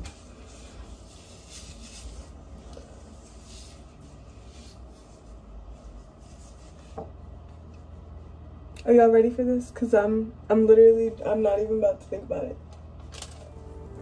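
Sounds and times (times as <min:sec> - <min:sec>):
gloved hands rubbing hair: 0:00.0 - 0:09.0.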